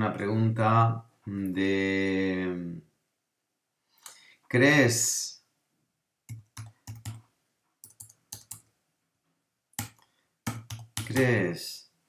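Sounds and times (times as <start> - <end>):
typing on computer keyboard: 6.3 - 7.2, 7.8 - 8.7, 9.8 - 11.3.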